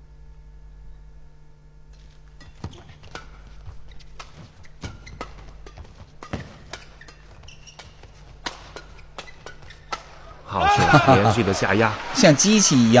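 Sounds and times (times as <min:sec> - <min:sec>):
low hum of hall: 0:00.0 - 0:13.0
rackets hitting shuttlecock: 0:02.3 - 0:10.3.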